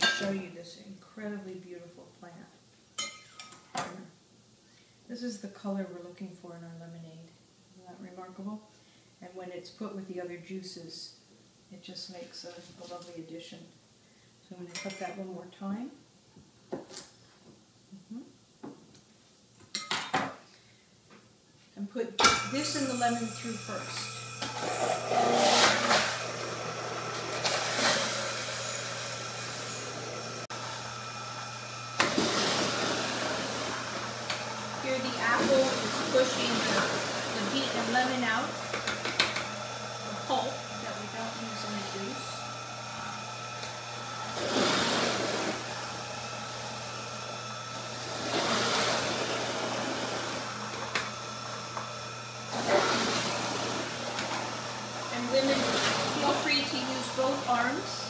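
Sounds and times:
juicer motor grinding produce: 22.2s - 58.0s.

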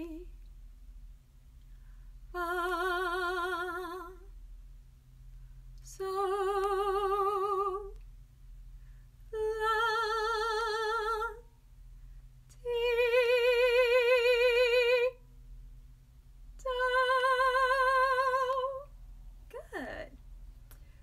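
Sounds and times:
woman singing long notes: 16.6s - 18.9s.

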